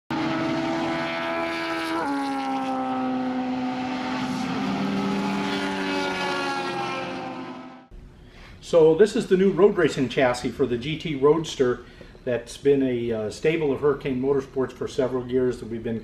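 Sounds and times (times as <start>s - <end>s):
engine running at high revs: 0.1s - 7.9s.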